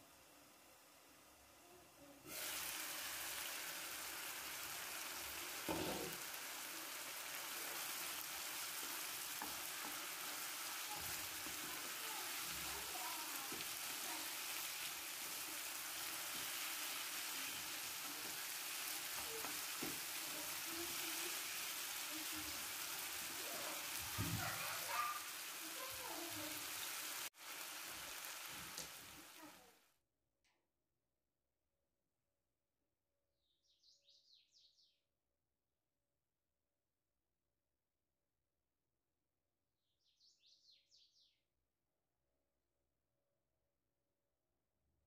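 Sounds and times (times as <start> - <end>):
chicken sizzling in oil: 0.0 - 29.8.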